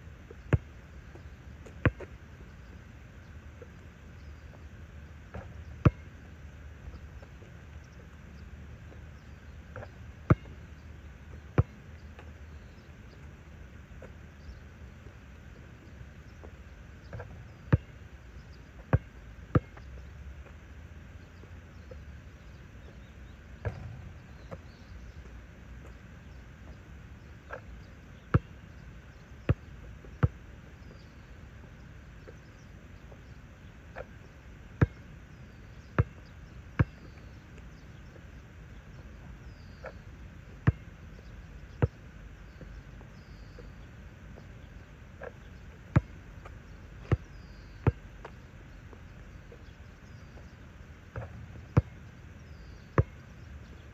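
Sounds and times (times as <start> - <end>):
low background hum: 0.0 - 53.9
basketball bouncing on asphalt: 0.3 - 2.2, 5.3 - 7.5, 8.9 - 10.7, 11.3 - 13.2, 16.4 - 20.6, 22.8 - 25.2, 27.5 - 28.6, 29.2 - 31.2, 34.8 - 35.1, 35.9 - 37.9, 38.9 - 43.8, 45.2 - 50.5, 51.1 - 53.8.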